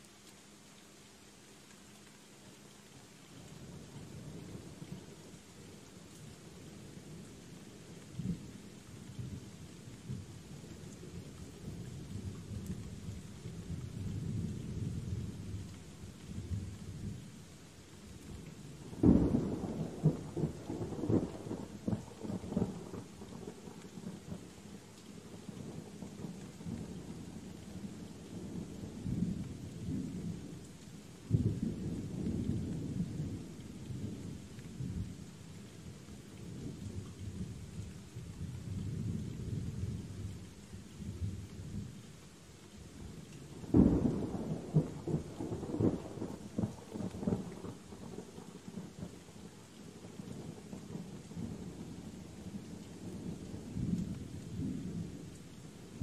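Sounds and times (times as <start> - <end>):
steady rain falling: 0.0 - 56.0
low thunder rumbling: 18.8 - 24.4, 43.5 - 49.2.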